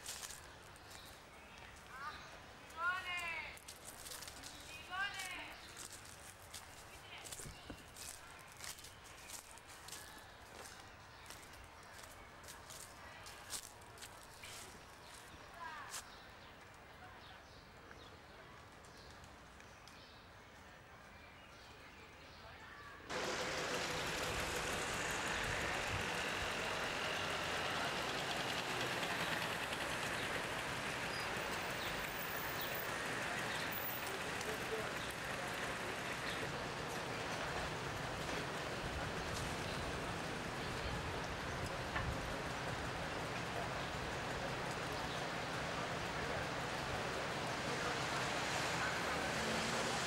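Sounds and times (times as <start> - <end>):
steady traffic noise: 0.0 - 17.0, 23.1 - 50.0
motor scooter driving past: 23.1 - 40.5
cars driving past: 23.1 - 40.6, 41.2 - 50.0.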